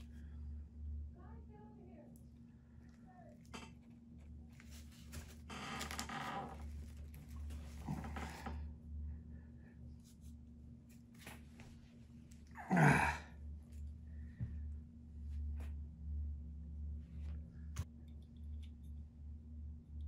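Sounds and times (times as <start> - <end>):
steady low hum: 0.0 - 20.0
rustling and handling noises: 2.0 - 8.7, 9.8 - 12.5.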